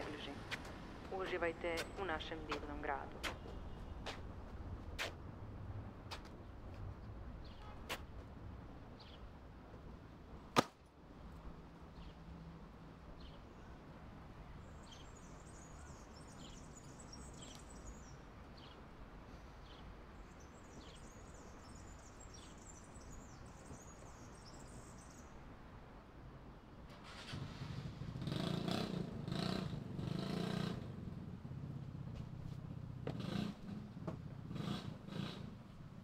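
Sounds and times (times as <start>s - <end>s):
distant traffic rumble: 0.0s - 36.0s
small birds chirping: 8.9s - 9.3s, 14.6s - 25.4s.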